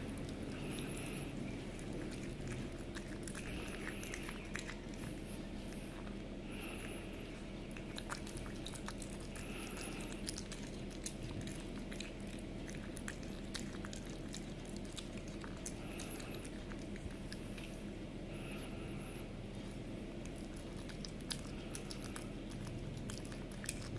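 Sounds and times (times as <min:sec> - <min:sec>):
cat chewing meat: 0:00.0 - 0:23.9
steady low hum: 0:00.0 - 0:23.9.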